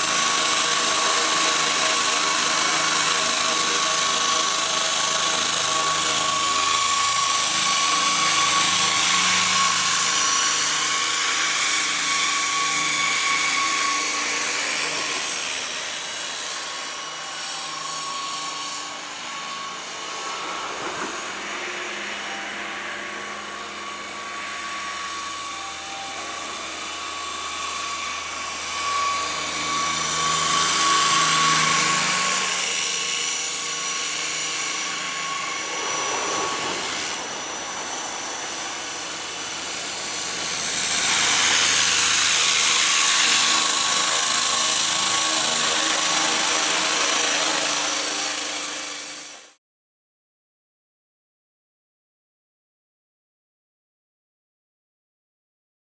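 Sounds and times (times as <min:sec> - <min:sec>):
high-pitched motor whine: 0:00.0 - 0:49.6
rotor blades whooshing: 0:32.1 - 0:39.8.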